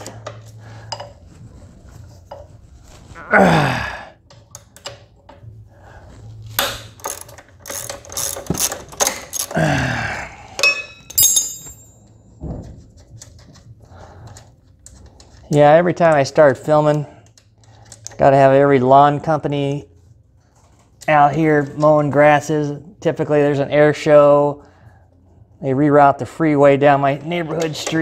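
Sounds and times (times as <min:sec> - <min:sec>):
ratchet wrench clicking: 0:06.8 - 0:09.5
short metallic ring: 0:10.6 - 0:12.0
metal tools clinking: 0:10.6 - 0:12.1.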